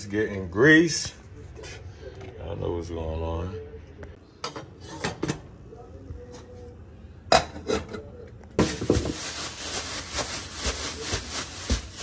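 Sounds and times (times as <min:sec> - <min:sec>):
plastic bag rustling: 0:08.6 - 0:12.0.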